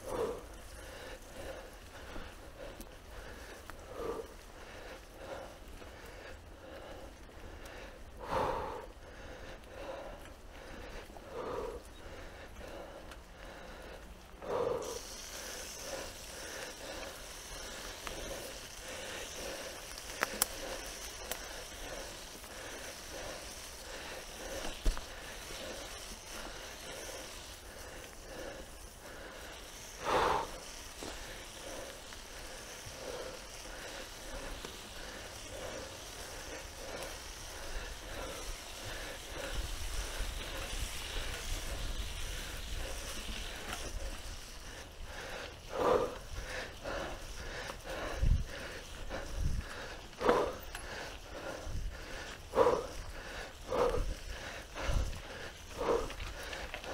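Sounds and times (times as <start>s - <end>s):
bike tyres hissing on dirt: 0.0s - 56.9s.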